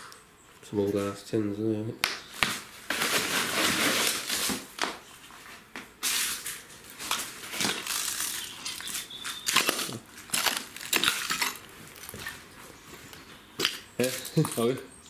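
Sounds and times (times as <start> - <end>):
debris crunching and clinking: 7.1 - 12.3.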